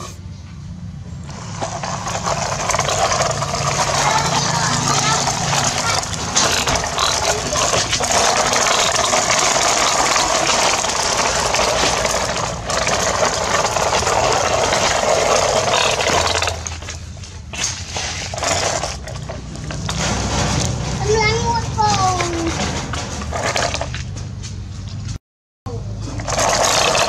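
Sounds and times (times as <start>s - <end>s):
toy truck rattling and scraping: 1.2s - 24.2s, 26.1s - 27.0s
sand pouring: 1.3s - 21.2s, 26.2s - 27.0s.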